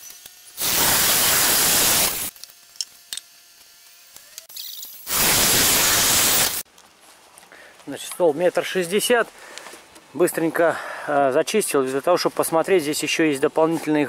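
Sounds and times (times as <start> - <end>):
circular saw cutting wood: 0.0 - 6.6.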